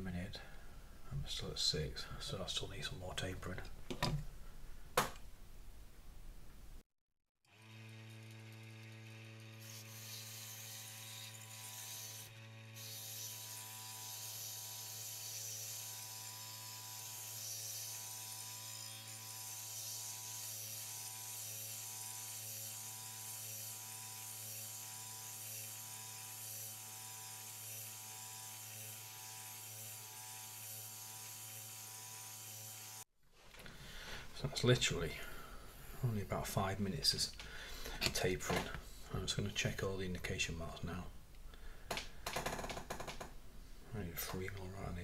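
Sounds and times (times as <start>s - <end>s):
small electric motor humming: 7.5s - 33.0s.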